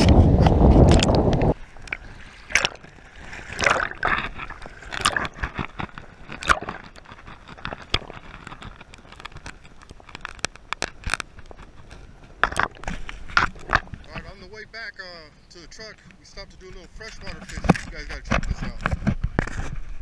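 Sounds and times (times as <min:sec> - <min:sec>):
sharp clicks and crackles: 0:00.0 - 0:14.6
water sloshing and gurgling: 0:00.0 - 0:14.6
water swishes: 0:00.0 - 0:14.8.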